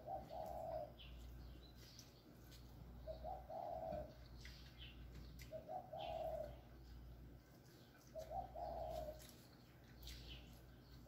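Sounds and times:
dove cooing: 0.0s - 1.2s, 3.0s - 4.3s, 5.5s - 6.7s, 8.1s - 9.3s.

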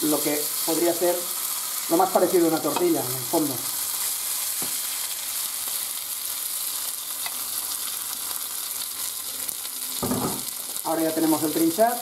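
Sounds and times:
food sizzling in frying pan: 0.0s - 12.0s
spatula taps: 2.6s - 3.0s.

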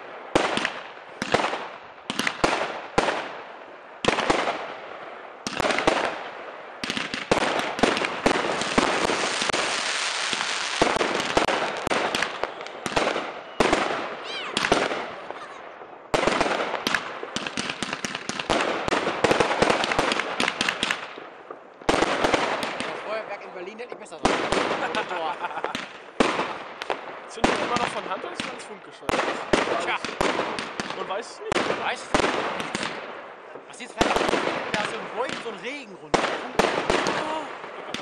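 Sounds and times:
firework bangs: 0.0s - 38.0s
firework crackling: 0.0s - 38.0s.

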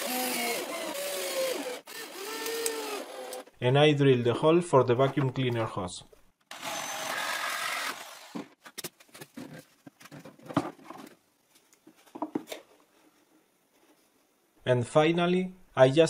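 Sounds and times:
electric drill cutting plywood: 0.0s - 3.5s, 6.5s - 8.5s.

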